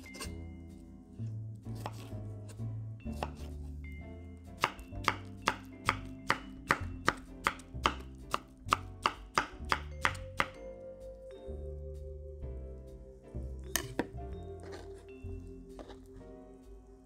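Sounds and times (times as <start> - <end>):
light background music: 0.0 - 17.0
knife chopping on wooden board: 1.8 - 2.1, 3.1 - 3.5, 4.6 - 10.6.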